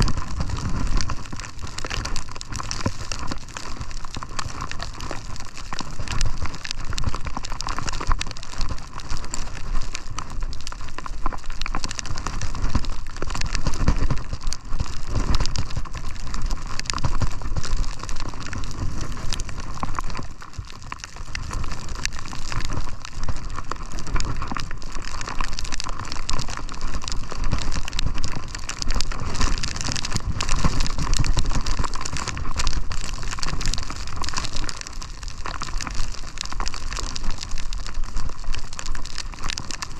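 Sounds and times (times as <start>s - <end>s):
wind on microphone: 0.0s - 3.4s.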